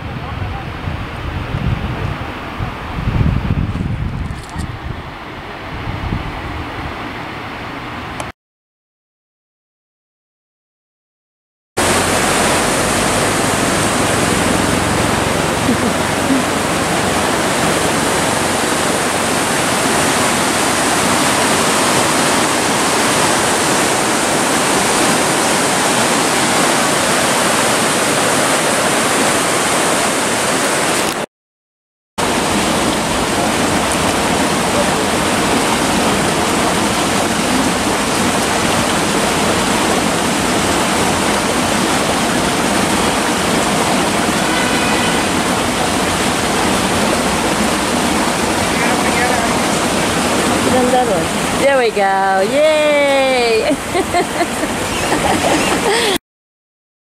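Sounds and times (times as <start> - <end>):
stream rushing over rocks: 11.8 - 31.3, 32.2 - 56.2.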